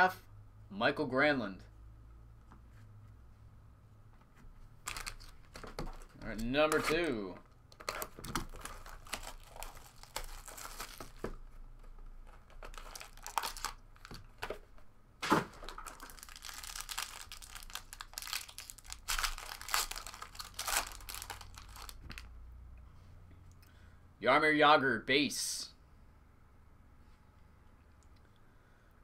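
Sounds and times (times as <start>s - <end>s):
foil wrapper crinkling and tearing: 4.9s - 11.4s, 12.2s - 14.4s, 15.5s - 22.3s.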